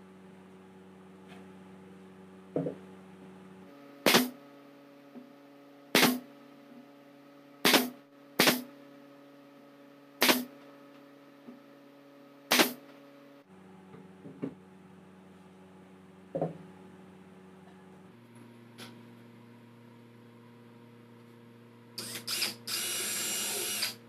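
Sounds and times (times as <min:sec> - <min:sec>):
nail gun firing: 0:04.1 - 0:04.4, 0:06.0 - 0:06.2, 0:07.6 - 0:08.7, 0:10.2 - 0:10.5, 0:12.5 - 0:12.8.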